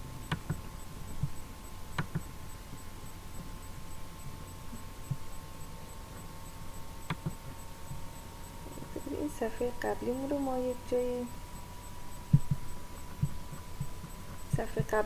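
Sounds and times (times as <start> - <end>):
electrical hum: 0.0 - 15.0
computer mouse clicks: 0.2 - 2.3, 7.0 - 7.4.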